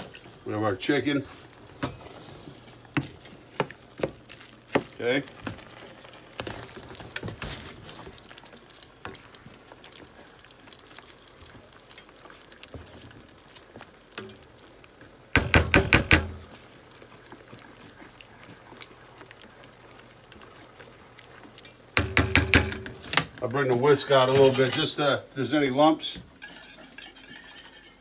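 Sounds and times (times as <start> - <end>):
wooden spoon scraping skillet: 0.0 - 14.7, 15.4 - 25.1, 26.3 - 28.0
utensil knocking against pan: 15.4 - 16.4, 22.0 - 23.0.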